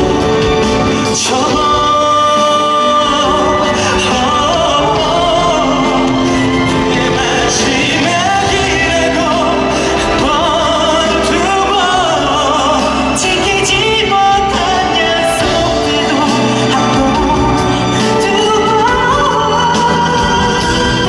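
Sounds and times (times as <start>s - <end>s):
instrumental accompaniment: 0.0s - 21.0s
man singing pop ballad: 0.0s - 21.0s.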